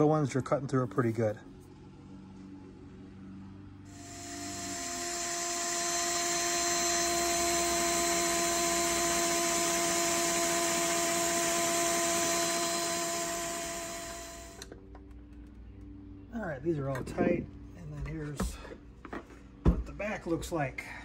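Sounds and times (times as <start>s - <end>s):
drill bit cutting through metal: 3.9s - 14.7s.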